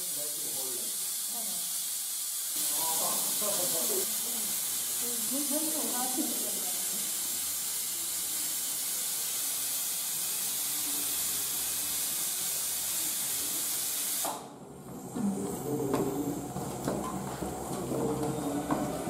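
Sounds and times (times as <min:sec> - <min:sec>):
steady hiss: 0:00.0 - 0:14.4.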